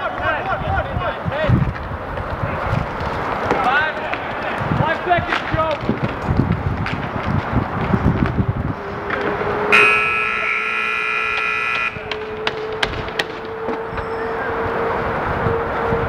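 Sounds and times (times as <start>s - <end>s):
roller hockey game clatter: 0.0s - 9.4s, 11.3s - 14.0s
harsh electronic buzzer: 9.7s - 12.1s
sticks and puck knocking: 11.3s - 13.8s.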